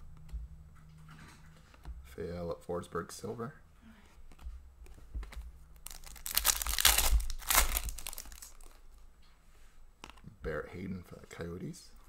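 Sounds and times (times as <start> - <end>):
foil wrapper tearing and crinkling: 5.8 - 8.8.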